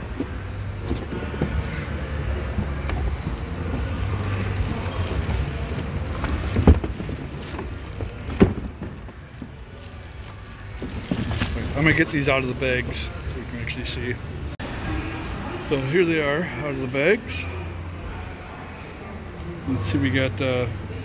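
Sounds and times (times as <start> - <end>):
plastic and cardboard crinkling: 0.1 - 13.0.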